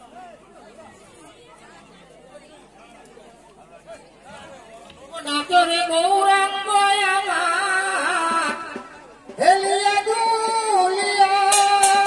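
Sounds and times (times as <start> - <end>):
high voice singing devotional song: 5.2 - 12.0.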